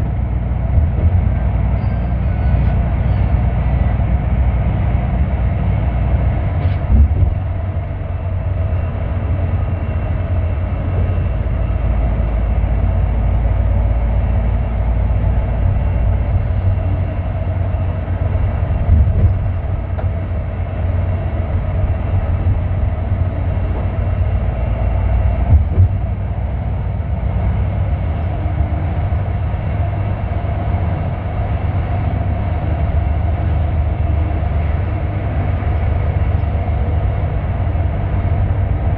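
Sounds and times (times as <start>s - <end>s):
vehicle bumps: 0.0s - 2.9s, 6.5s - 11.6s, 15.7s - 26.5s
vehicle rumble from inside cabin: 0.0s - 38.9s.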